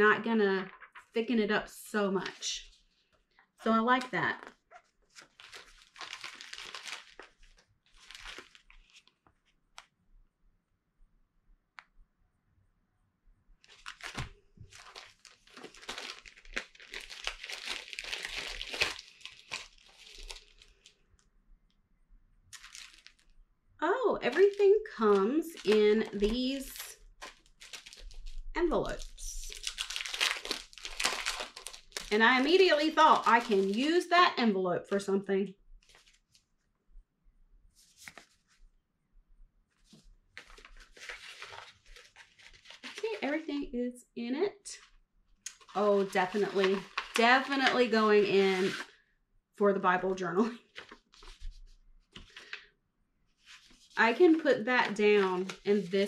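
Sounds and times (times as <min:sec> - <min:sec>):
packaging crinkling: 0:04.4 - 0:09.9, 0:13.6 - 0:21.0, 0:22.5 - 0:23.4, 0:24.3 - 0:34.0, 0:40.4 - 0:43.2, 0:45.5 - 0:47.9
paper rustling and sliding: 0:37.8 - 0:38.6, 0:39.7 - 0:43.1, 0:50.8 - 0:52.6, 0:53.4 - 0:54.3.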